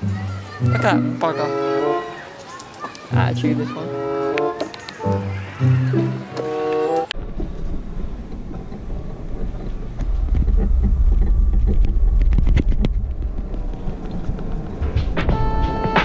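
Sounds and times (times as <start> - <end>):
low camera rumble: 7.1 - 16.0.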